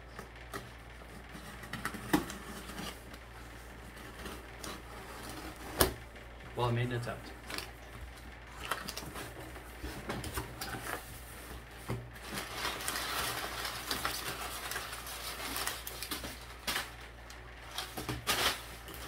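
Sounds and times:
packing paper rustling and crinkling: 0:06.6 - 0:19.0
paper crackling and crunching: 0:06.6 - 0:19.0.

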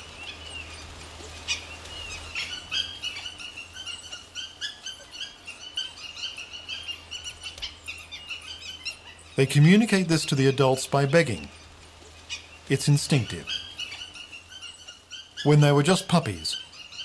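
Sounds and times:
pups squealing and whining: 0:00.2 - 0:09.4, 0:11.4 - 0:15.6.

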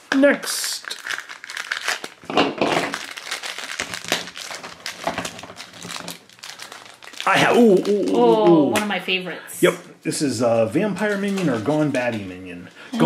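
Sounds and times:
hard plastic crackling and clicking: 0:00.0 - 0:08.9.

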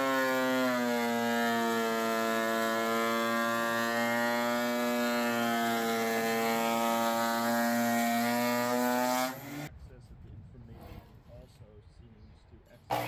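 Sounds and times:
thickness planer whining: 0:00.0 - 0:09.7.

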